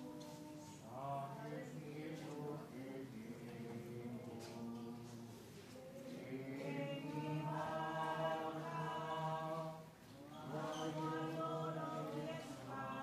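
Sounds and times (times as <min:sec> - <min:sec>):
choir singing a hymn: 0:00.0 - 0:13.0.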